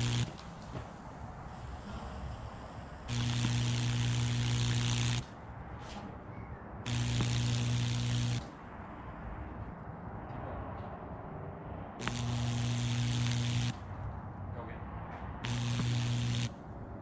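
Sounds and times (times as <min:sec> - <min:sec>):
electrical arc humming and crackling: 0:00.0 - 0:05.6, 0:06.8 - 0:08.8, 0:12.0 - 0:14.1, 0:15.4 - 0:17.0.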